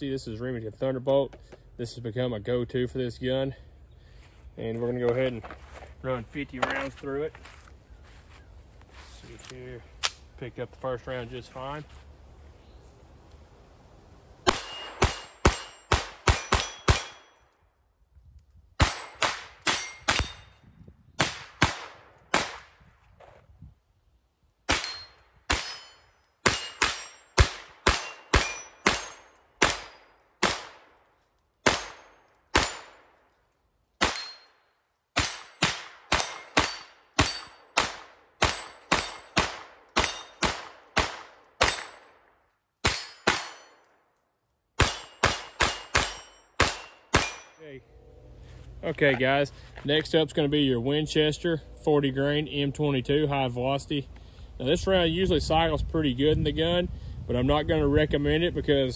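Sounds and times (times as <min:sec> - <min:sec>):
pistol shots: 0:14.4 - 0:17.4, 0:18.8 - 0:20.5, 0:21.2 - 0:22.8, 0:24.7 - 0:31.0, 0:31.6 - 0:33.2, 0:34.0 - 0:34.5, 0:35.2 - 0:42.2, 0:42.8 - 0:43.8, 0:44.8 - 0:47.6.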